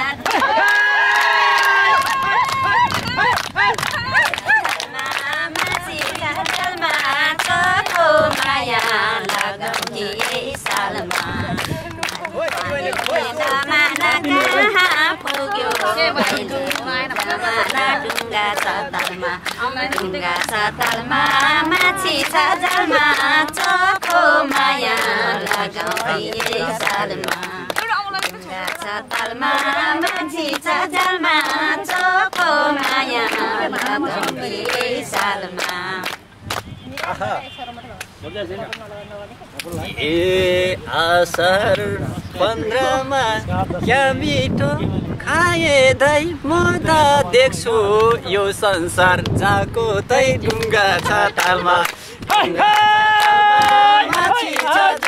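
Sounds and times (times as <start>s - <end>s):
women singing folk song: 0.0s - 0.6s, 2.3s - 36.3s
hand clapping in time: 0.2s - 37.3s, 50.4s - 55.0s.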